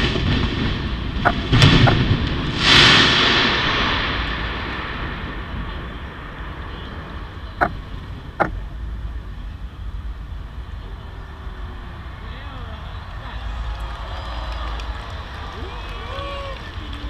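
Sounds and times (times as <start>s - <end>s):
firework burst: 0.0s - 7.4s
firework crackling hiss: 0.0s - 8.1s
steady low rumble: 0.0s - 17.0s.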